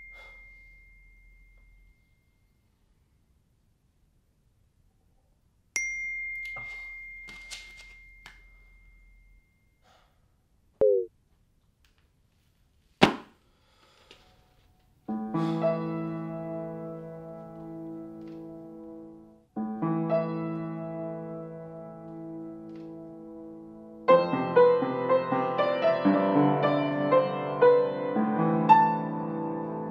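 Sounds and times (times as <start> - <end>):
high ding: 0.0 - 2.6, 5.8 - 10.0
piano chords: 15.1 - 29.9.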